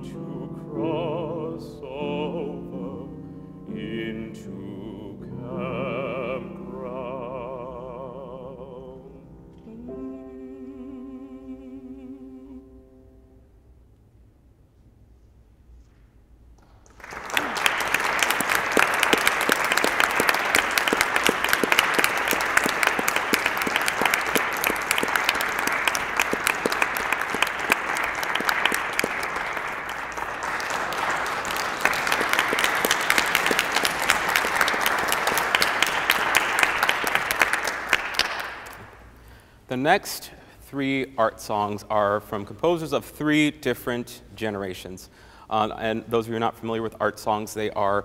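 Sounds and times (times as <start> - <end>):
audience applauding: 16.6 - 39.2.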